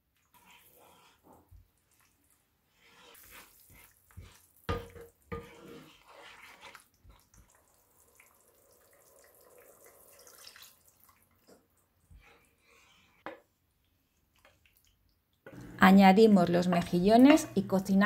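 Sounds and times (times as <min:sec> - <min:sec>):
sauce simmering in pot: 0:00.0 - 0:15.8
wooden spoon knocking pot: 0:04.7 - 0:05.6, 0:16.5 - 0:17.9.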